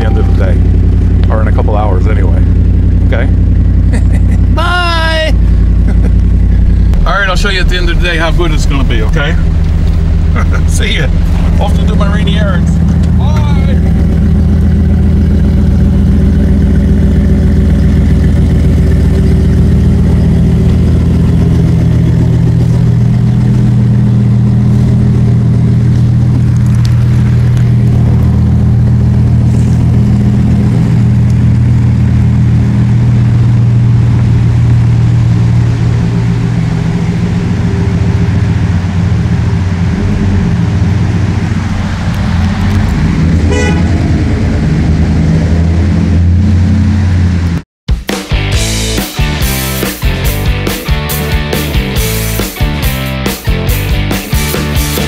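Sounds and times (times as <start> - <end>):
pickup truck engine driving off: 0.0 - 47.6, 48.4 - 55.0.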